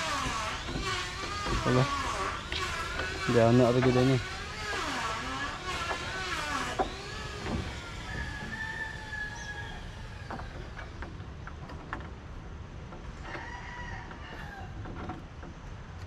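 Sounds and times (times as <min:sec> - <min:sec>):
rooster crowing: 0:07.8 - 0:10.3, 0:13.2 - 0:14.8.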